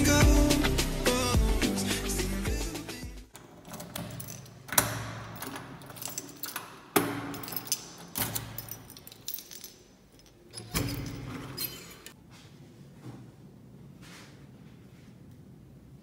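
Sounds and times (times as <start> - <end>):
lock clicking and clunking: 3.3 - 9.2
keys jangling: 3.6 - 12.2
door handle creaking: 10.5 - 12.2.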